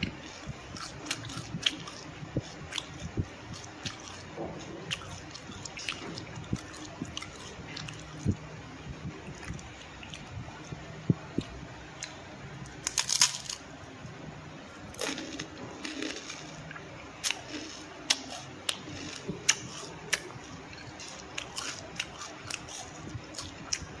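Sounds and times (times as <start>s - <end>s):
rice cracker crunching: 12.6s - 13.6s, 14.9s - 23.6s.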